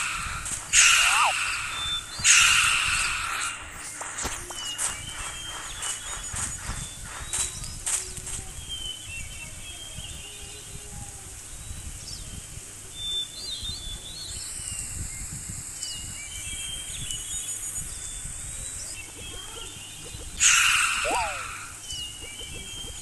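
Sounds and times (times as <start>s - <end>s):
loud harsh sound: 0.0s - 4.0s
outdoor nature ambience: 0.0s - 23.0s
small birds chirping: 0.0s - 23.0s.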